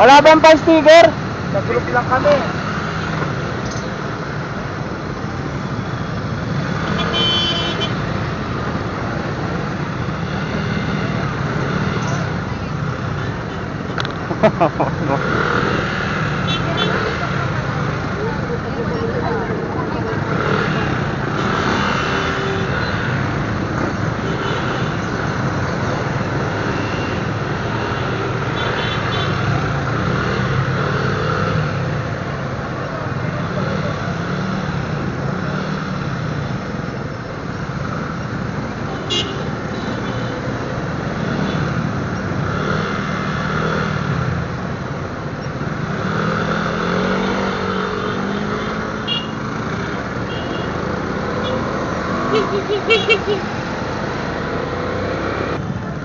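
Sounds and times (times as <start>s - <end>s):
road noise hum: 0.0s - 56.0s
vehicle horn toot: 6.9s - 8.0s.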